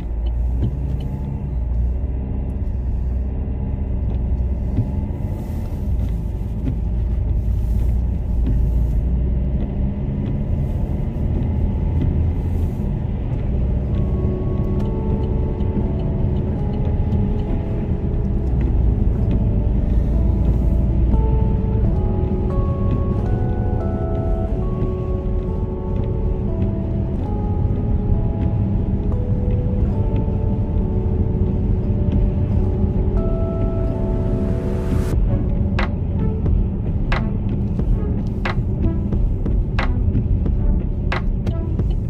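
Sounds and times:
car road rumble: 0.0 - 42.0.

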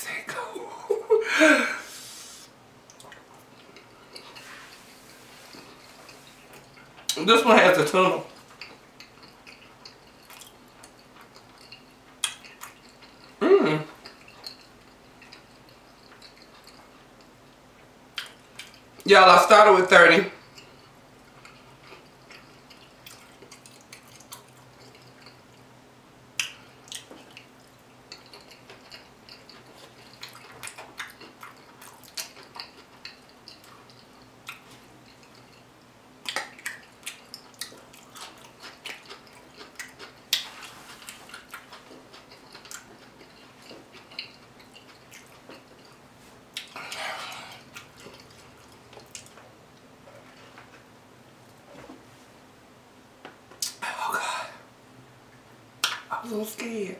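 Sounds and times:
faint steady hum: 0.0 - 56.9
wet chewing clicks and smacks: 2.9 - 4.4, 5.5 - 7.2, 8.3 - 13.4, 14.0 - 17.4, 18.1 - 19.1, 20.4 - 25.7, 26.3 - 50.9.

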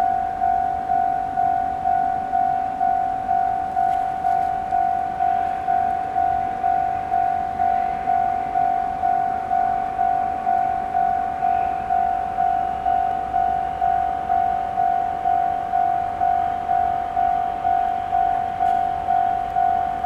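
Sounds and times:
level crossing bell ringing: 0.0 - 20.0.

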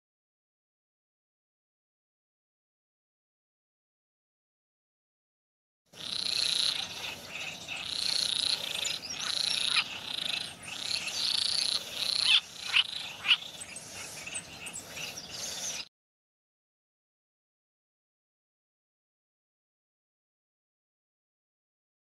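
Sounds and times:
frogs trilling: 6.0 - 15.8
frog chirps: 6.0 - 15.9.

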